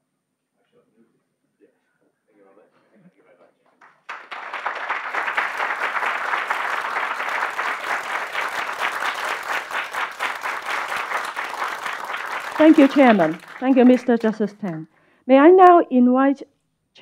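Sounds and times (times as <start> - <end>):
audience clapping: 3.7 - 14.9.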